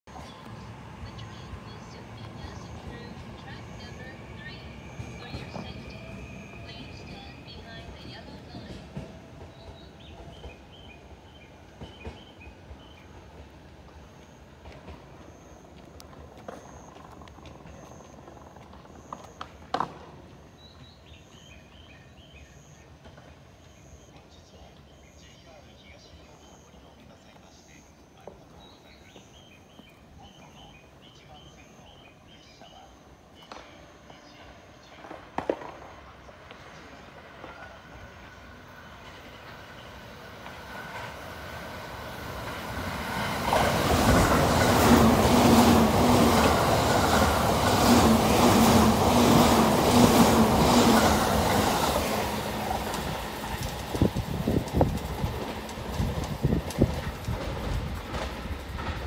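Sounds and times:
train rushing past: 0.1s - 22.4s, 33.1s - 59.0s
steady train hum: 0.1s - 59.0s
wheels clacking over rail joints: 33.4s - 59.0s.

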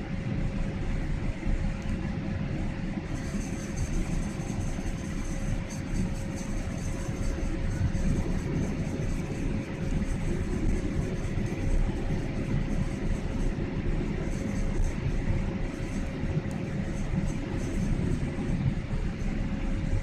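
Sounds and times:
airliner engines roaring: 0.0s - 20.0s
constant mid-pitched hum: 0.0s - 20.0s.

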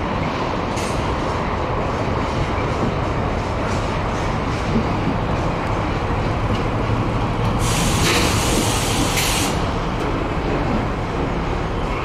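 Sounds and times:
train rumbling past: 0.0s - 12.0s
hiss of escaping air: 7.6s - 9.7s.

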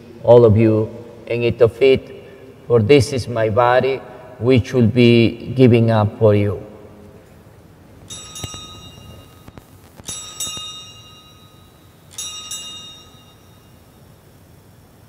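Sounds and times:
altar bells ringing: 8.0s - 14.3s.

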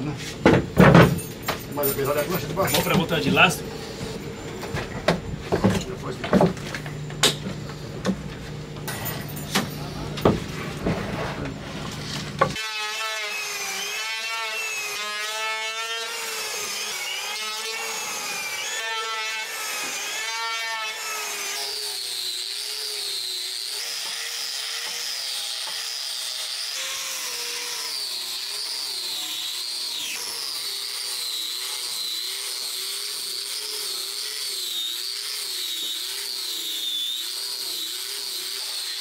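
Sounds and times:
angle grinder sanding wood: 10.0s - 39.0s
electric hand planer: 10.2s - 39.0s.

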